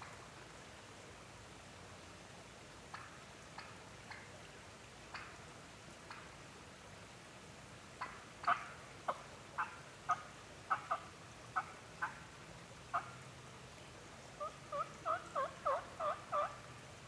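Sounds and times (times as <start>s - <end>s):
turkey clucks: 2.9s - 4.4s, 5.1s - 5.4s, 6.0s - 6.4s, 8.0s - 13.2s, 14.4s - 16.8s
turkey yelps: 8.0s - 12.3s, 12.9s - 13.2s, 14.4s - 16.7s.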